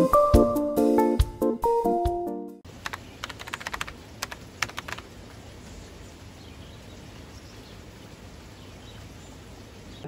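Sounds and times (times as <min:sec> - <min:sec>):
outdoor background hiss: 0:02.6 - 0:10.0
keyboard typing clicks: 0:02.8 - 0:05.1.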